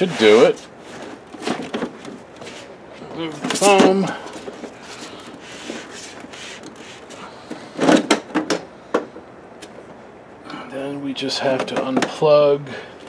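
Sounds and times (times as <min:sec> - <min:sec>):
soft rubbing on plastic: 0:04.4 - 0:07.2.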